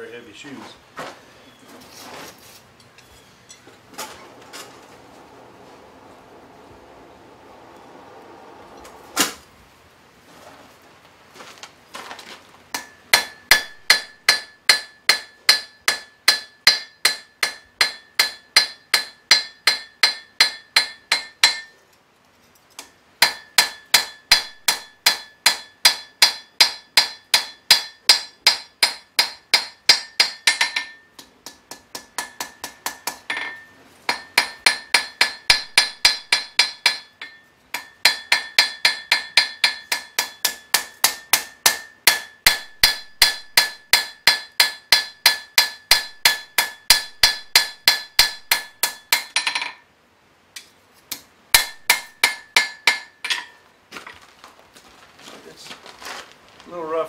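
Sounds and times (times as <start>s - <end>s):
hammer striking steel on anvil: 12.8s - 21.8s, 22.8s - 49.8s, 50.6s - 53.6s.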